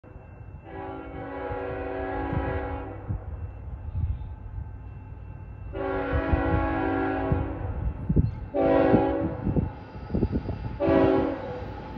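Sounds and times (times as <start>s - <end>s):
train air horn blasts: 0.6s - 3.2s, 5.7s - 7.8s, 8.5s - 9.6s, 10.8s - 11.6s.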